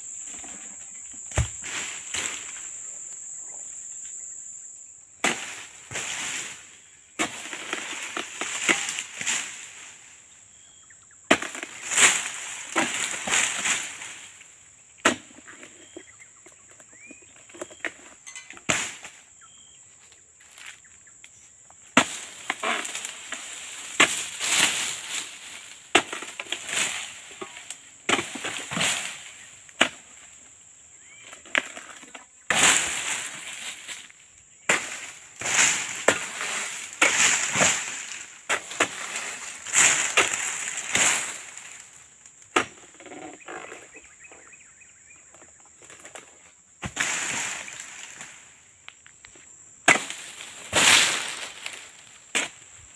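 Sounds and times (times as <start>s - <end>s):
palm fronds rustling and thrashing: 0.1s - 3.4s, 5.2s - 10.2s, 11.3s - 15.8s, 22.0s - 43.7s, 45.3s - 48.6s, 49.8s - 52.9s.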